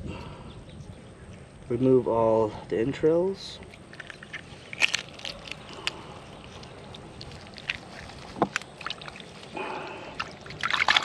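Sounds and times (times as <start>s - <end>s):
knife squelching in fish guts: 3.7s - 11.0s.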